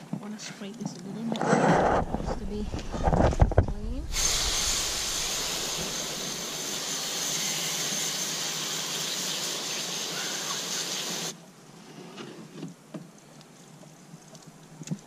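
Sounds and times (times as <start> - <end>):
hose nozzle spraying water: 3.8 - 11.4.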